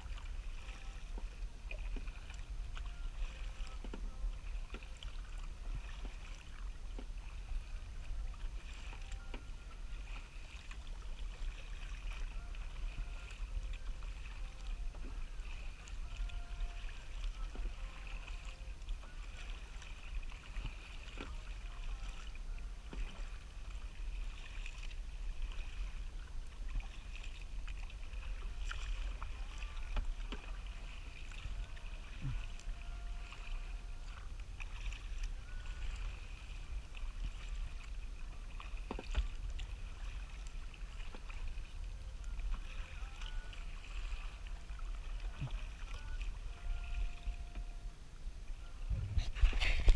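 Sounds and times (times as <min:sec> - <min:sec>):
paddle splashing and dripping: 0:00.0 - 0:49.9
water washing along hull: 0:00.0 - 0:49.9
low rumble: 0:45.0 - 0:49.9.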